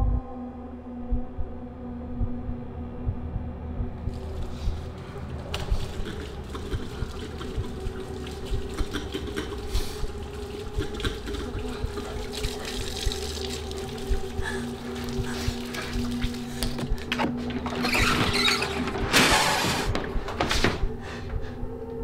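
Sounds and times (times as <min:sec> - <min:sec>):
low droning tone: 0:00.0 - 0:17.2.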